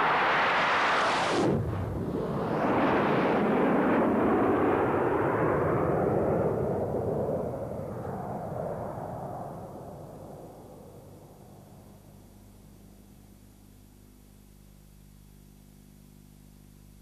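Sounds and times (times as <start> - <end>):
jet flying past: 0.0 - 11.8.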